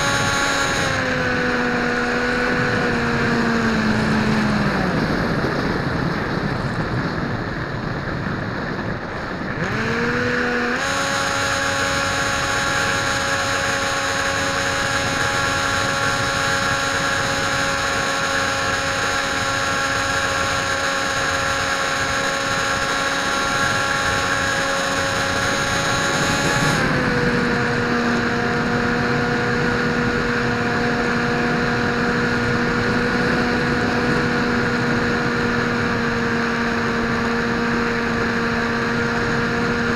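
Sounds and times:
model airplane motor whining: 0:09.6 - 0:36.1.

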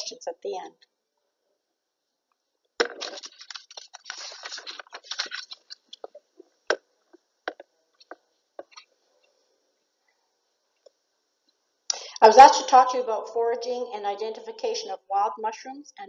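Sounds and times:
rustling crackle of handling noise: 0:02.8 - 0:09.5.

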